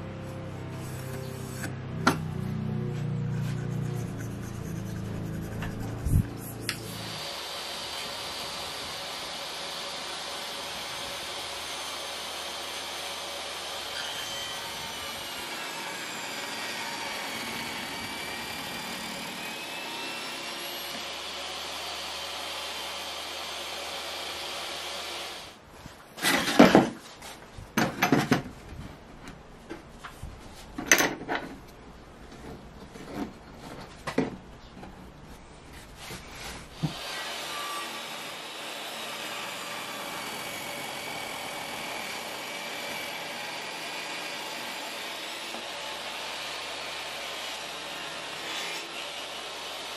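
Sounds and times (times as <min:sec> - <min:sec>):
saw cutting wood: 0:00.3 - 0:25.6, 0:36.4 - 0:49.9
table saw running: 0:06.6 - 0:25.4, 0:36.8 - 0:49.9.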